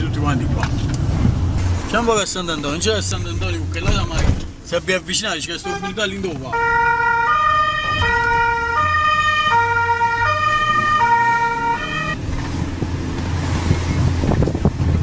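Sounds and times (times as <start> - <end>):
car driving rumble from inside: 0.0 - 6.5, 12.1 - 15.0
two-tone siren: 6.6 - 12.2.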